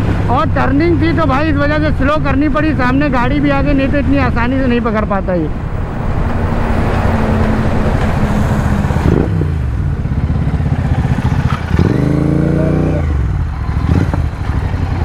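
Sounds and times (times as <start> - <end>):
engine rev: 6.2 - 15.0
motorcycle engine slowing and idling: 6.8 - 15.0.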